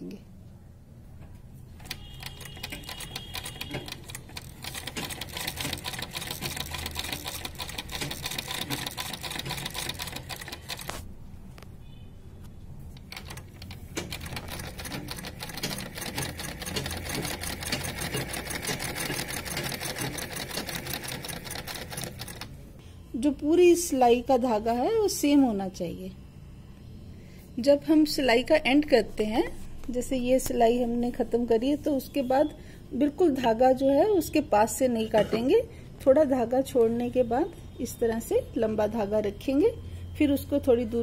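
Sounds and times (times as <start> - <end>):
sewing machine stitching: 1.8 - 11.0, 13.0 - 22.5.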